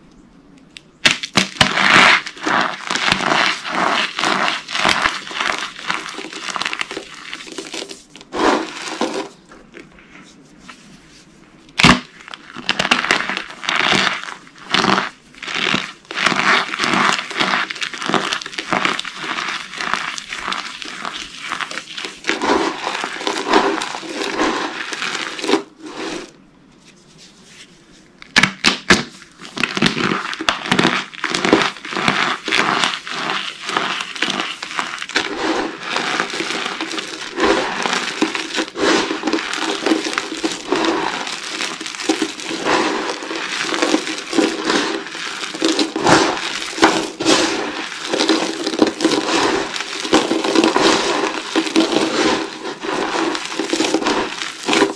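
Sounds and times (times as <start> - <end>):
sharp cracks: 0.6 - 7.0
soap pieces crunching: 1.0 - 9.4, 11.8 - 25.7, 28.3 - 54.9.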